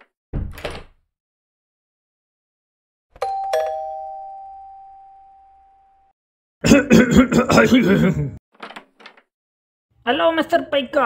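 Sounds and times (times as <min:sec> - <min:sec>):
doorbell ding-dong chime: 0:03.2 - 0:06.1.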